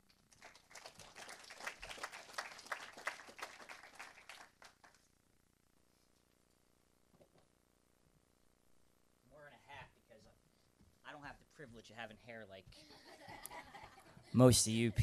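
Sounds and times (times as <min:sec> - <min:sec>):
congregation applauding: 0:00.3 - 0:05.0.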